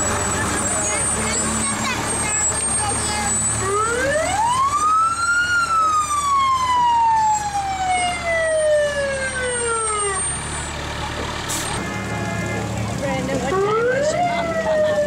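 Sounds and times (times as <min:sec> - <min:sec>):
fire engine siren wailing: 0:00.0 - 0:15.0.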